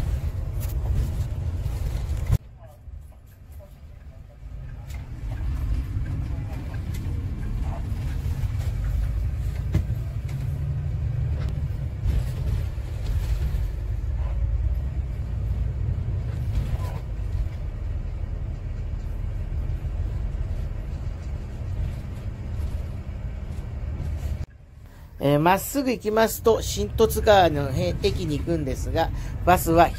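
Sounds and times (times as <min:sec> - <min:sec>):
bus engine and road rumble: 0:00.0 - 0:29.9.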